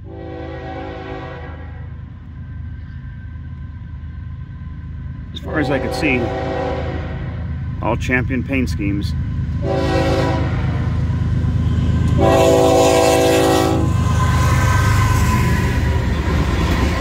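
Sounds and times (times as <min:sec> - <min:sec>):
train horn blasts: 0:00.0 - 0:02.0, 0:05.4 - 0:07.5, 0:09.6 - 0:10.9, 0:12.1 - 0:14.1
diesel locomotive engine rumble: 0:00.0 - 0:17.0.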